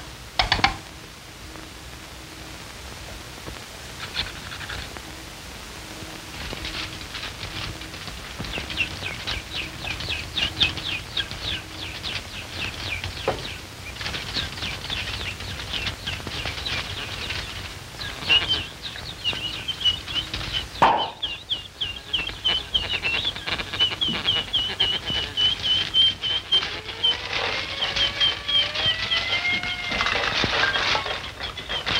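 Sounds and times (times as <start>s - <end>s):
sharp knocks: 20.8s - 21.3s.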